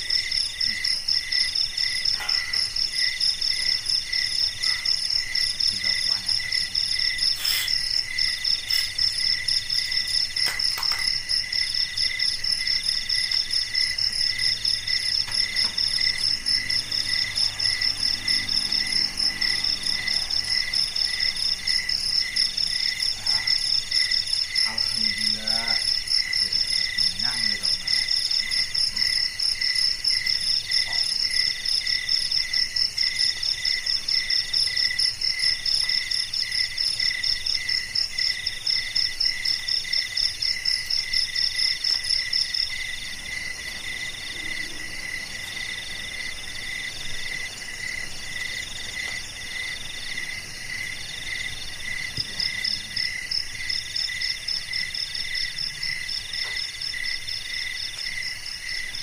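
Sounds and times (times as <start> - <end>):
longer pulsed insect song: 0.0 - 59.0
low cricket chirp: 0.0 - 59.0
high fast-pulsing insect trill: 0.2 - 29.3.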